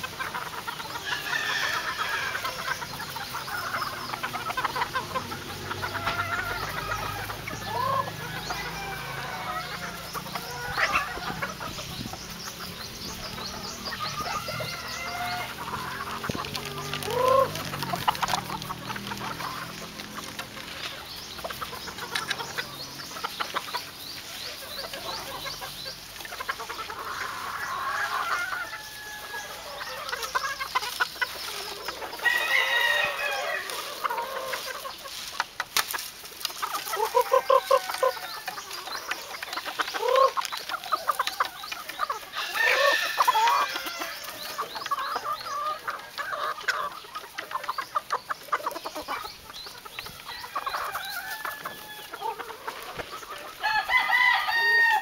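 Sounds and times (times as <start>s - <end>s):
chickens clucking and calling: 0.0s - 55.0s
rooster crowing: 1.0s - 2.6s, 6.0s - 9.9s, 27.2s - 29.9s, 32.2s - 33.9s, 37.0s - 38.4s, 42.3s - 44.4s, 50.2s - 52.3s, 53.6s - 55.0s.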